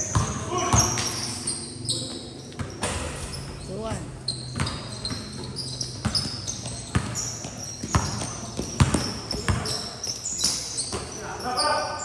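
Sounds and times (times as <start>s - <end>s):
basketball bouncing on hard court: 0.0s - 1.1s, 4.4s - 10.0s
sneakers squeaking on court: 0.0s - 12.0s.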